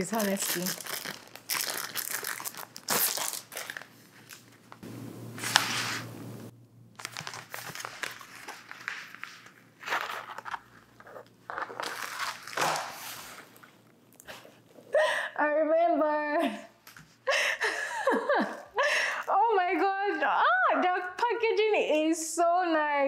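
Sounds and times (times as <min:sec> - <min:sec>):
packaging crinkling and tearing: 0:00.0 - 0:04.8, 0:07.0 - 0:13.7.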